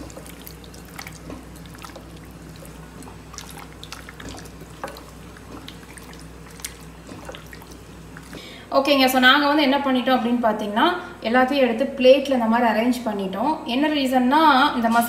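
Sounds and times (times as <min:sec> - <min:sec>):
hands squelching wet paste: 0:00.0 - 0:08.4
low steady hum: 0:00.0 - 0:15.0.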